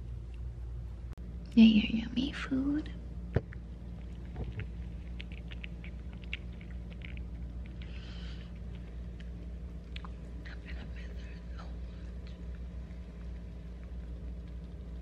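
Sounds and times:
steady low hum: 0.0 - 15.0
cat chewing and licking: 3.4 - 15.0.

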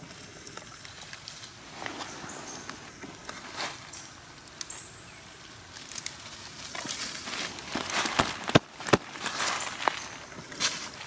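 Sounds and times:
dry leaves crackling and rustling: 0.0 - 11.0
sharp cracks: 7.6 - 10.9.

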